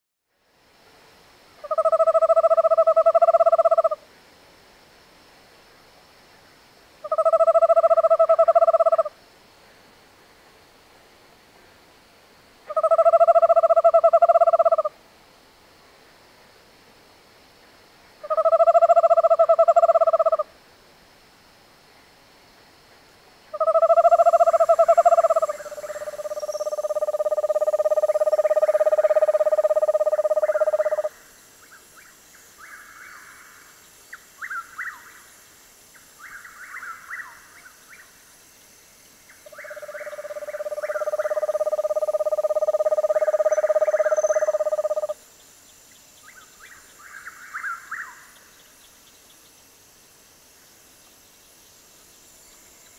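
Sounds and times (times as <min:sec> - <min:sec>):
owl monotone trill: 0:01.6 - 0:04.0, 0:07.0 - 0:09.2, 0:12.7 - 0:14.9, 0:18.2 - 0:20.5, 0:23.5 - 0:33.5, 0:39.4 - 0:45.2, 0:46.2 - 0:48.4.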